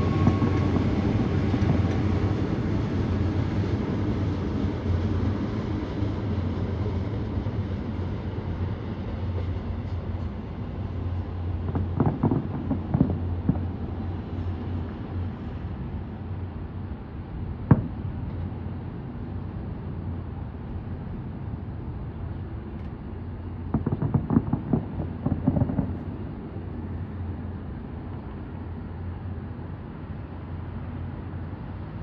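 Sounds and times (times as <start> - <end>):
firework bang: 11.6 - 13.7, 17.7 - 18.0, 23.7 - 26.2
firework crackling pops: 11.6 - 13.8, 17.7 - 18.4, 23.7 - 26.2.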